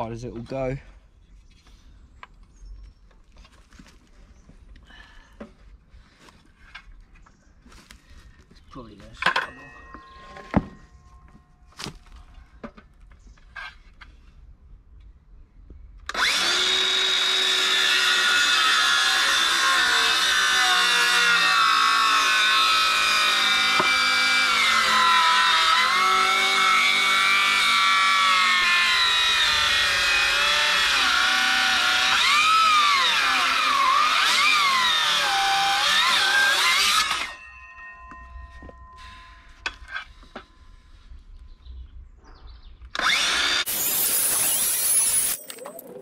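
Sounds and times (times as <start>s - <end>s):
circular saw cutting wood: 16.1s - 37.5s, 43.0s - 45.6s.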